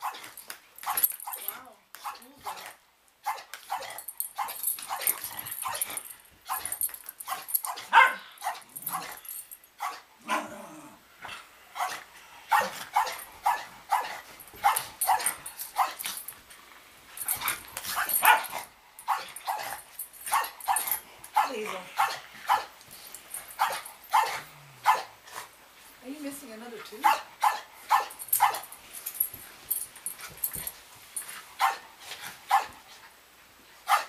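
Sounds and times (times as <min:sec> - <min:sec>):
dogs barking and yipping: 0:00.0 - 0:10.4, 0:11.8 - 0:16.3, 0:17.2 - 0:25.2, 0:27.0 - 0:30.6, 0:31.6 - 0:32.8.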